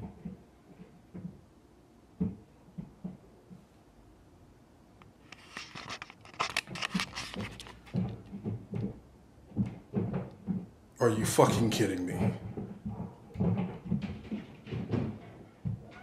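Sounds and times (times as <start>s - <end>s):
camera handling rustling and clattering: 5.3s - 8.4s.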